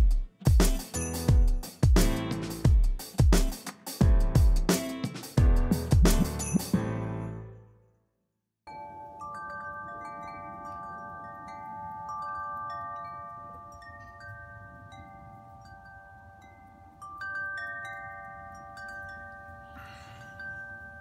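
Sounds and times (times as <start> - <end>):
metal tubular wind chimes ringing: 1.0 - 1.3, 8.7 - 21.0.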